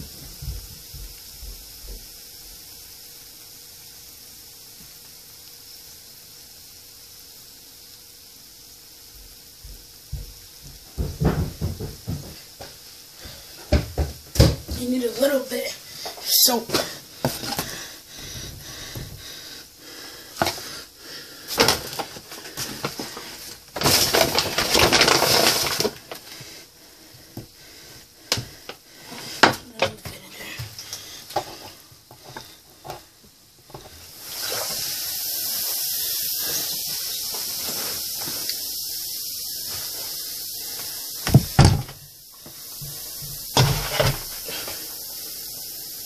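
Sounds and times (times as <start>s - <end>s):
steady high hiss: 0.0s - 46.0s
containers and cups clattering: 21.5s - 26.2s.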